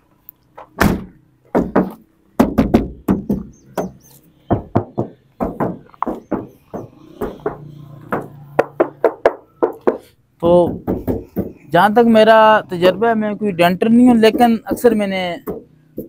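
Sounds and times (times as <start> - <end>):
knuckles rapping on sheet metal: 1.5 - 11.7, 14.1 - 16.0.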